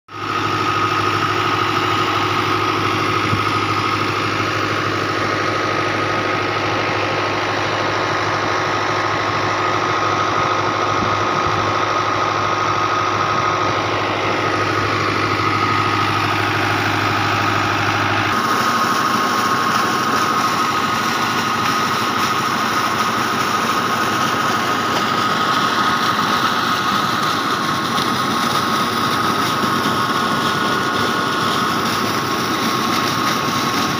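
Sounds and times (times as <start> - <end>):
tractor engine running: 0.1 - 33.9
water gushing from pump: 0.1 - 33.9.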